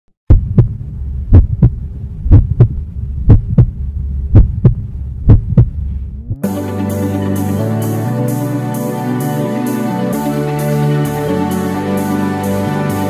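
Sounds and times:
heartbeat thumps: 0:00.3 - 0:06.4
low hum: 0:00.3 - 0:07.3
rising sweep: 0:05.7 - 0:12.8
music: 0:06.3 - 0:13.0.

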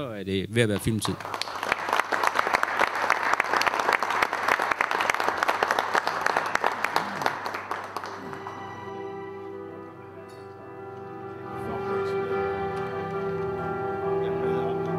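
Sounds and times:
audience applauding: 0:00.7 - 0:09.7.

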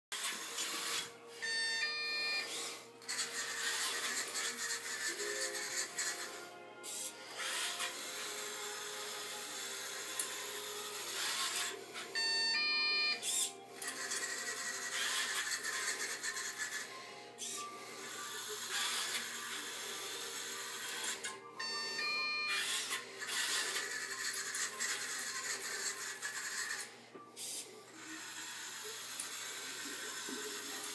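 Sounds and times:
robot motors whirring: 0:00.2 - 0:01.2, 0:02.2 - 0:06.3, 0:06.9 - 0:12.1, 0:13.1 - 0:21.3, 0:22.5 - 0:30.9
short electronic tones: 0:00.4 - 0:02.6, 0:11.1 - 0:15.4, 0:21.6 - 0:24.2.

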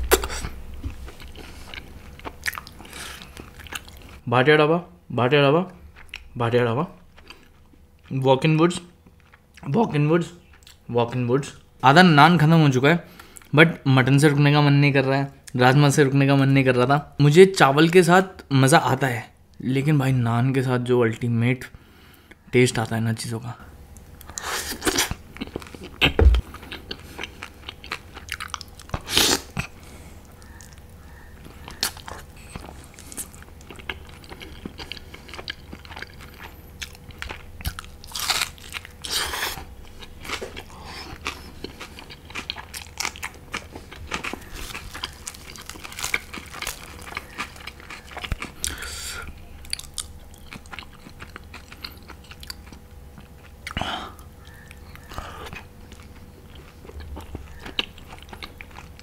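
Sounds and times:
close chewing and biting: 0:00.1 - 0:04.2, 0:24.2 - 0:59.0.

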